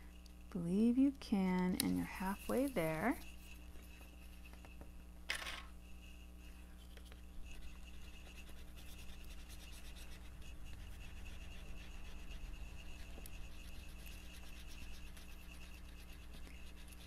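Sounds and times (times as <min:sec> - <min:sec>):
fine scratchy rubbing on paper: 0:01.9 - 0:04.8, 0:05.8 - 0:17.0.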